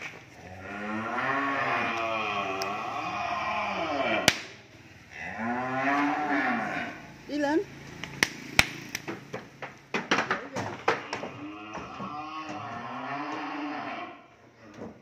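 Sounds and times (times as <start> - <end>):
cattle mooing: 0.4 - 4.4, 5.1 - 7.0, 10.9 - 14.8.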